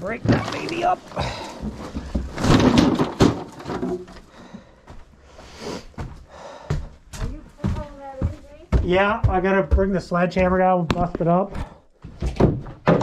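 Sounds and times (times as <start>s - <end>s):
household junk scraping and clattering: 0.0s - 4.8s
knocks: 12.2s - 13.0s.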